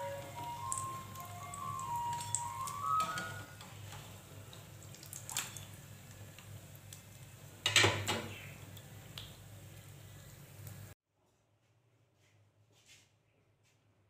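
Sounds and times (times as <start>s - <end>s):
hot oil dripping and crackling: 0.0s - 11.0s.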